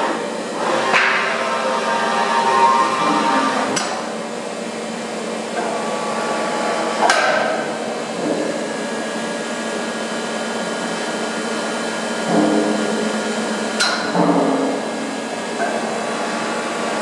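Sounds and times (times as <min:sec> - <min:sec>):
machine hall hum: 0:00.0 - 0:17.0
sharp metallic knocks: 0:12.2 - 0:15.9.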